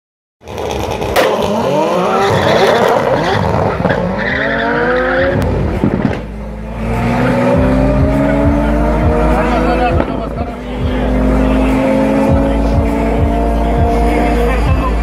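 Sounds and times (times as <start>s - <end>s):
race car engines revving: 0.4s - 15.0s.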